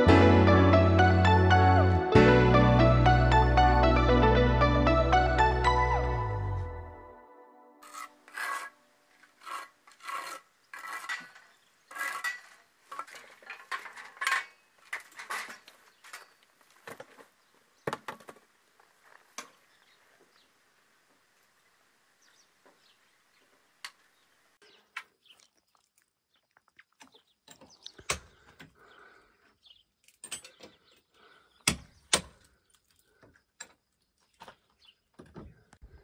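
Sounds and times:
clinks and knocks of hand work: 0:09.4 - 0:17.2, 0:30.0 - 0:34.6.

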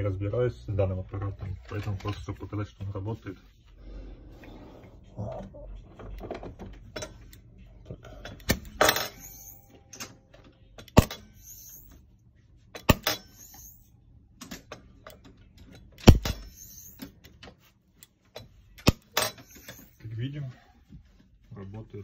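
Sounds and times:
welder discharge cracks: 0:10.9 - 0:11.8, 0:12.8 - 0:13.8, 0:16.0 - 0:17.0, 0:18.8 - 0:19.9.

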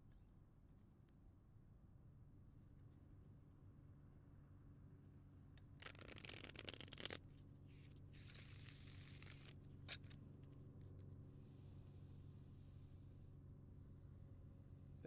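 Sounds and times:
cards being shuffled: 0:05.8 - 0:07.2, 0:08.2 - 0:10.2.

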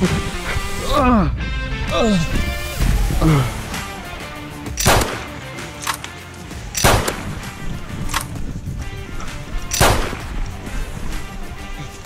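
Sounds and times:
background music: 0:00.0 - 0:12.0
fainter gunshots: 0:04.6 - 0:06.0, 0:06.8 - 0:08.4, 0:09.7 - 0:10.6
loud gunshots: 0:04.7 - 0:05.5, 0:06.8 - 0:07.6, 0:09.7 - 0:10.4.

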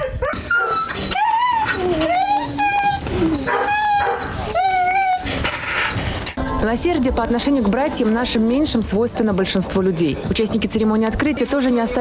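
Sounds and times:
dog whining and howling: 0:00.0 - 0:06.4.

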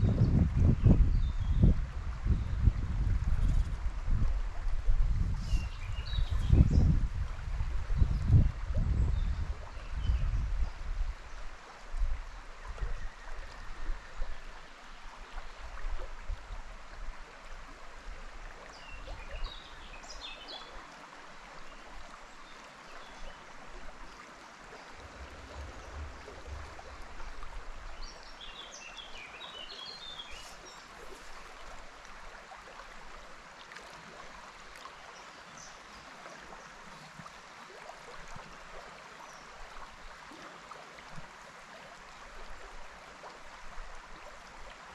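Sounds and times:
river water rushing: 0:19.6 - 0:44.9.

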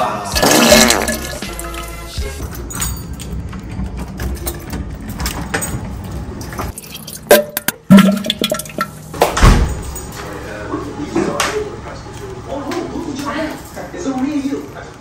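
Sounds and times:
toilet refilling water: 0:00.4 - 0:01.8, 0:06.7 - 0:09.1.

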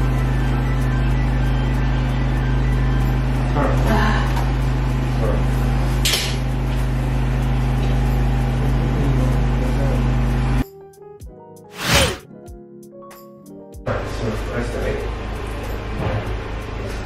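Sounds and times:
low machine hum: 0:00.0 - 0:10.6.

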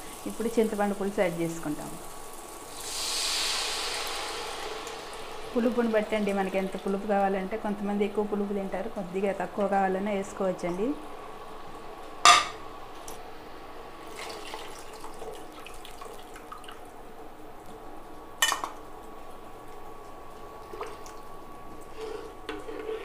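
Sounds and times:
ladle stirring gravy: 0:21.8 - 0:23.0.

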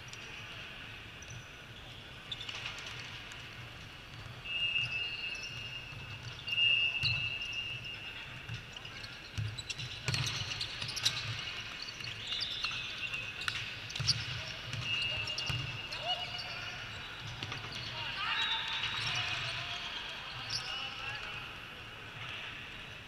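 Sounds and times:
sneakers squeaking on court: 0:04.9 - 0:20.8.

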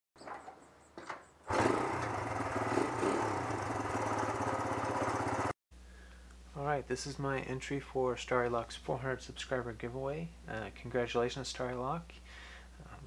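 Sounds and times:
small petrol engine running: 0:01.5 - 0:05.6.

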